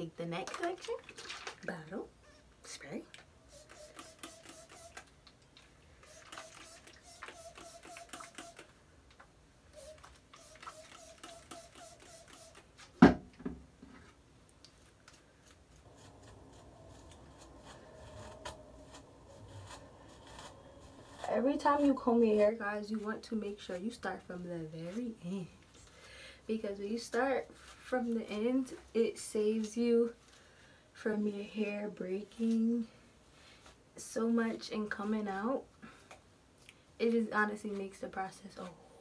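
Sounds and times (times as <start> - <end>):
comb crackling through hair: 3.5 - 5.1, 6.0 - 8.8, 9.8 - 12.9, 14.6 - 23.8.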